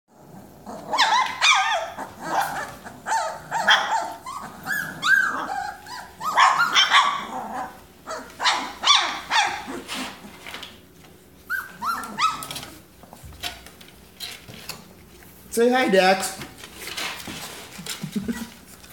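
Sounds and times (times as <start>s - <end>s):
puppies whining and yelping: 0.1s - 10.6s, 11.4s - 12.9s.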